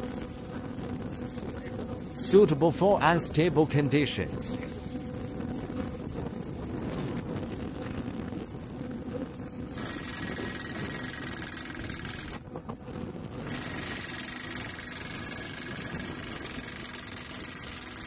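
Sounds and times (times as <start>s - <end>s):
drilling rig running: 9.7s - 12.4s, 13.4s - 18.0s.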